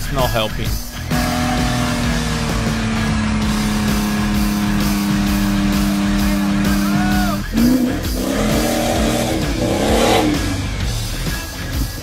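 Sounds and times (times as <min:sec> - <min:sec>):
background music: 0:00.0 - 0:12.0
vehicle engine running: 0:00.0 - 0:12.0
engine revving up: 0:00.9 - 0:11.1.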